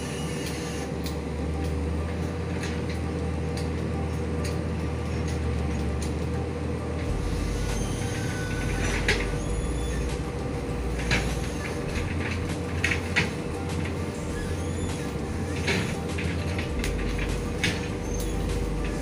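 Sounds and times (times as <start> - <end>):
low mechanical drone: 0.0 - 19.0
sharp snaps and cracks: 0.4 - 6.4.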